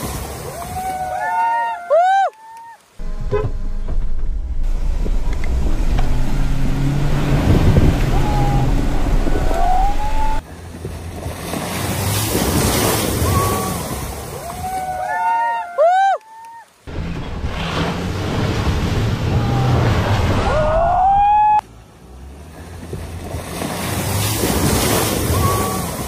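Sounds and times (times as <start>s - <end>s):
vehicle rushing past: 3.0s - 10.4s, 16.9s - 26.0s
car engine running under load: 3.0s - 11.4s.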